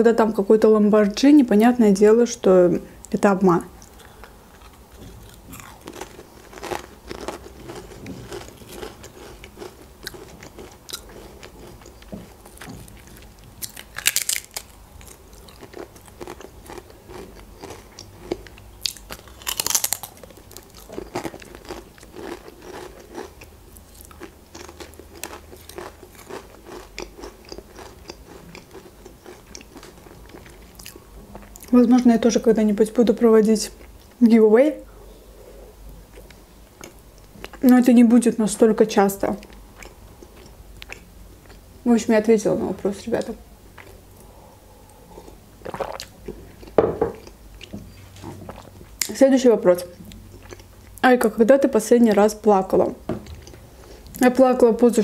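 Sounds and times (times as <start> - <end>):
chewing crackle: 3.8 - 31.8, 39.4 - 41.6, 43.2 - 49.1, 49.8 - 51.0
crisps crunching: 4.0 - 31.0.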